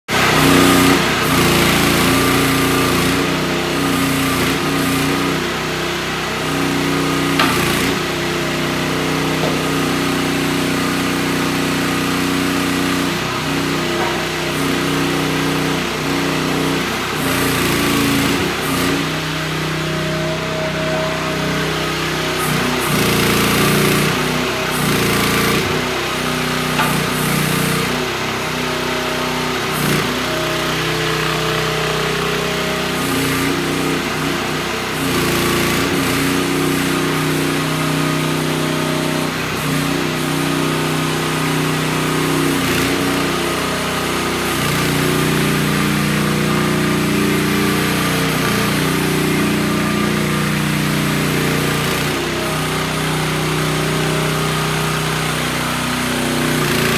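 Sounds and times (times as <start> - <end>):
mini excavator engine running: 0.1 - 56.9.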